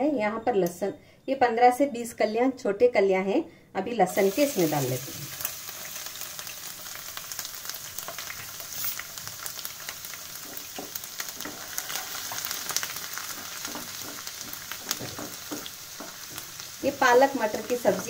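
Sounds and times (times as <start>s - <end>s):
garlic sizzling in hot oil: 4.1s - 18.0s
wooden spatula scraping: 10.3s - 16.9s.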